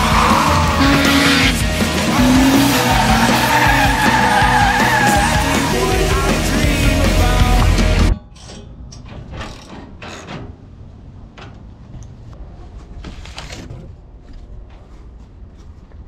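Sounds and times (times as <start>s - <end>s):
loud music: 0.0s - 8.2s
car engine and tyres: 0.0s - 16.0s
metal parts scraping and clinking: 8.1s - 10.6s.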